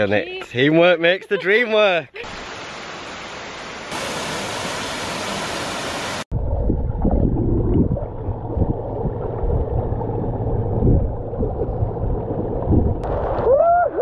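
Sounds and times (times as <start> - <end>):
waterfall pouring into pool: 2.2 - 6.3
muffled underwater rush: 3.9 - 14.0
underwater bubbling and sloshing: 6.3 - 13.4.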